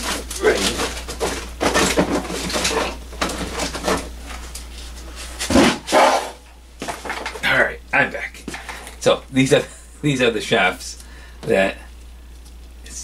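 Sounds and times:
objects being moved and knocked: 0:00.0 - 0:07.5.

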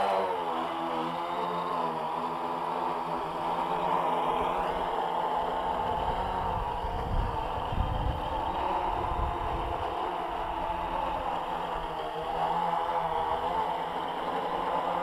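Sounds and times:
drone propellers buzzing: 0:00.0 - 0:15.0
low rumble on microphone: 0:05.6 - 0:11.9.

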